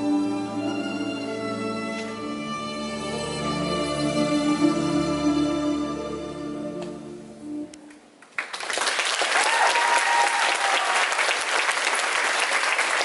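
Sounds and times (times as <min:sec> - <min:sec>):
audience applause: 0:08.3 - 0:13.0.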